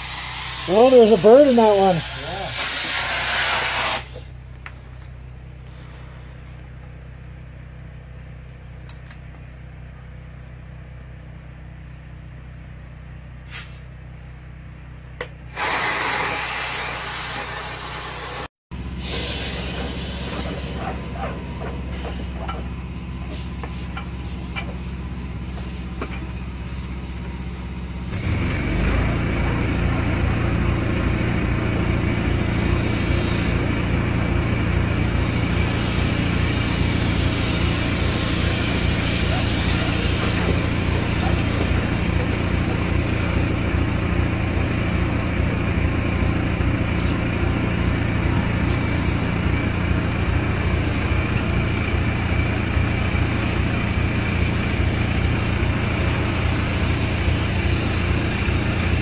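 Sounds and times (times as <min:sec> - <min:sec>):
low motor hum: 0:17.7 - 0:59.0.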